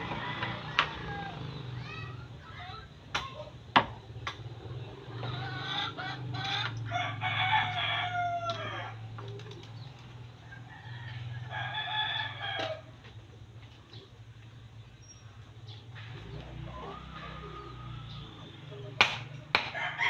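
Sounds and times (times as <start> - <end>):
rooster crowing: 0.0 - 1.5, 6.8 - 9.2, 10.4 - 13.0, 19.7 - 20.0.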